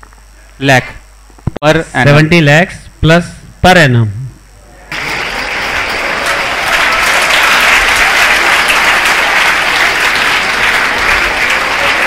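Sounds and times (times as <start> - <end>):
crowd applauding: 4.9 - 12.0.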